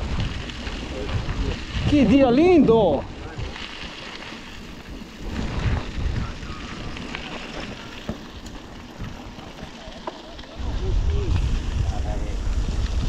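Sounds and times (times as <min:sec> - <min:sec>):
wind rumbling on microphone: 0:00.0 - 0:13.0.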